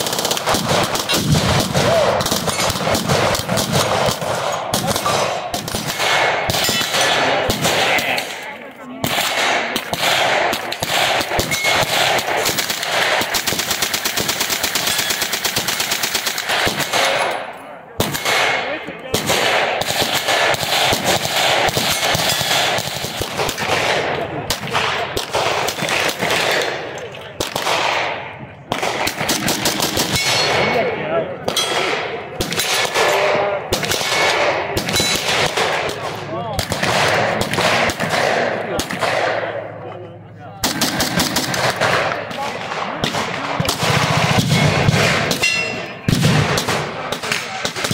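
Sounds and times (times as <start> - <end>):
automatic gunfire bursts: 0.0 - 8.4, 9.0 - 17.3, 18.0 - 26.8, 27.4 - 30.5, 40.6 - 45.5.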